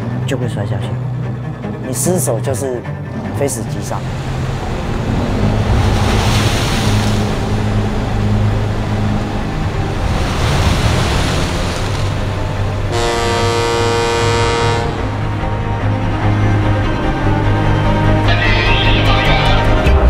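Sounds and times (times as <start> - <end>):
low boat engine hum: 0.0 - 20.0
sustained pitched tone: 2.9 - 19.8
wind: 3.1 - 17.2
sea waves rushing against hull: 3.7 - 15.3.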